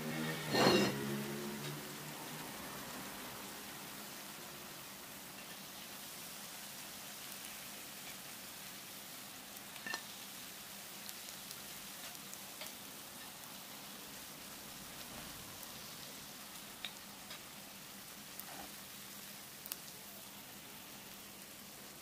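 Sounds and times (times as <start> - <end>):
fritters sizzling in oil: 0.0 - 22.0
oil popping and crackling: 9.4 - 13.6, 14.6 - 20.2.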